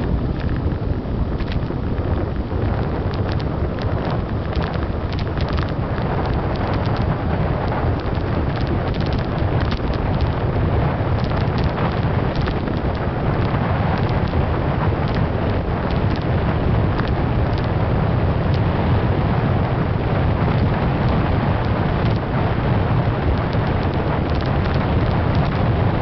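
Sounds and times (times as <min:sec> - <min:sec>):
wind buffeting microphone: 0:00.0 - 0:26.0
clicks and rattles: 0:08.0 - 0:10.4, 0:11.2 - 0:14.4, 0:15.9 - 0:16.3, 0:23.4 - 0:25.6.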